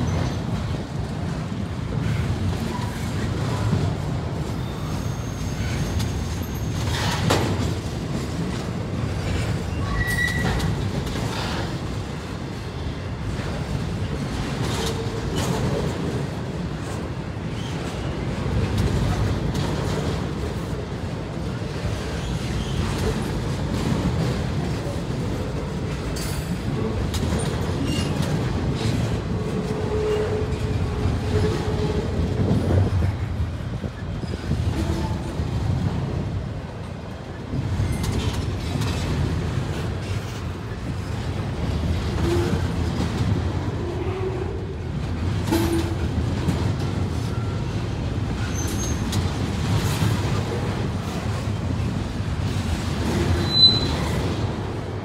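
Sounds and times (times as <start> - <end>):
train wheels rumbling on rails: 0.0 - 55.0
faint wheel squeals: 4.6 - 7.0, 53.4 - 54.1.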